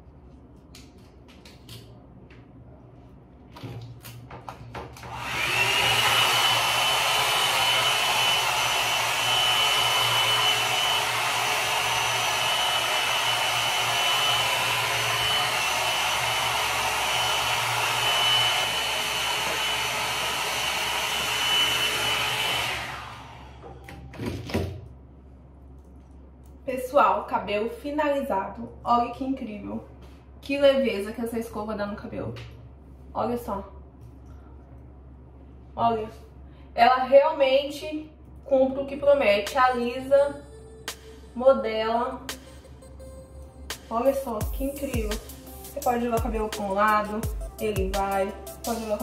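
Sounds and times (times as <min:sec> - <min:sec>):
hot air brush motor running: 0:05.0 - 0:23.7.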